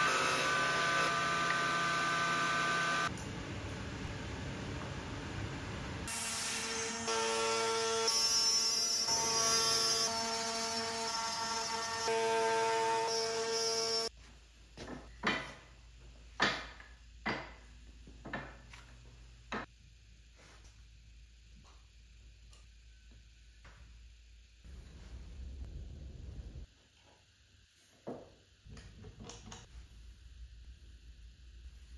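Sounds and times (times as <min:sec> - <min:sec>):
trim router cutting wood: 0:00.0 - 0:03.1.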